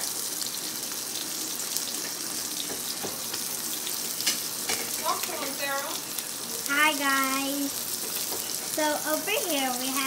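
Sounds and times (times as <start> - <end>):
chicken sizzling in oil: 0.0 - 10.0.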